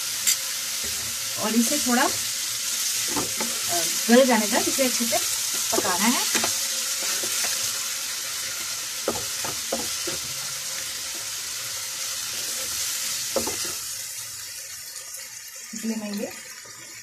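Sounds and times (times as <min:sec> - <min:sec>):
vegetables sizzling in a pan: 0:00.0 - 0:17.0
spatula scraping a pan: 0:05.4 - 0:07.8, 0:08.4 - 0:11.4.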